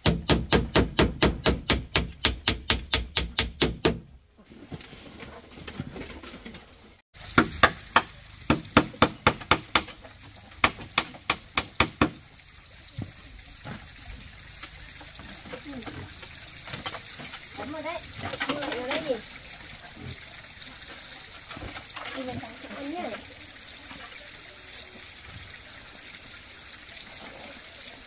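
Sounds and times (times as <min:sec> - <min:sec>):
hammer striking bamboo: 0:00.0 - 0:04.1, 0:07.3 - 0:12.2.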